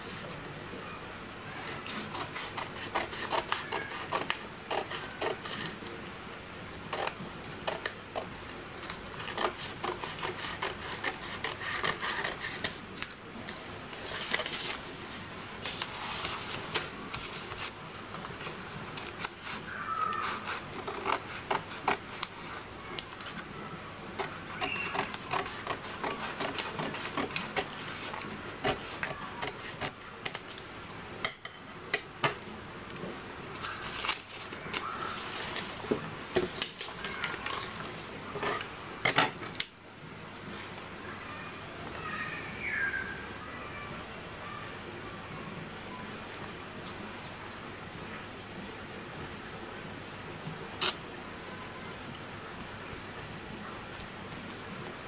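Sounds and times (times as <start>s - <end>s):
scissors snipping paper: 1.6s - 5.9s, 6.9s - 13.1s, 18.4s - 23.4s, 24.2s - 30.6s
paper rustling and sliding: 9.2s - 23.4s, 33.6s - 38.7s.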